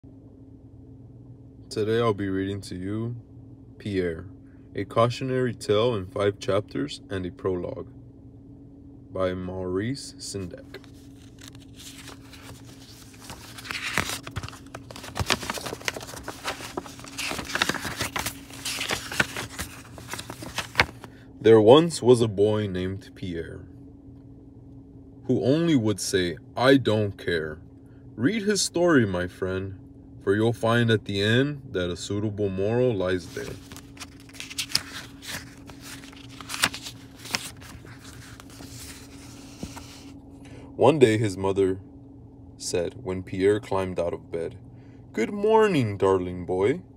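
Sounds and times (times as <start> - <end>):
faint steady hum: 0.0 - 46.9
paper pages rustling: 10.7 - 21.2, 33.1 - 40.2.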